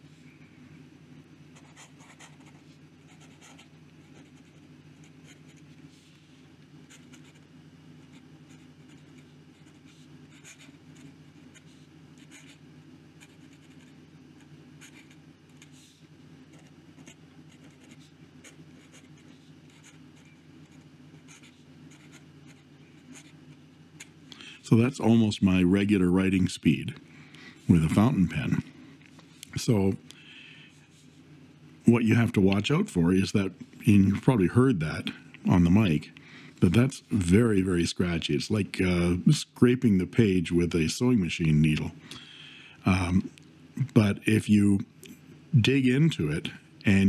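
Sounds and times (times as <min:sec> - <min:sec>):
steady low hum: 0:00.0 - 0:47.0
pen nib scratching paper: 0:01.6 - 0:05.6, 0:06.9 - 0:12.6, 0:13.2 - 0:14.0, 0:14.8 - 0:15.9, 0:16.5 - 0:23.4.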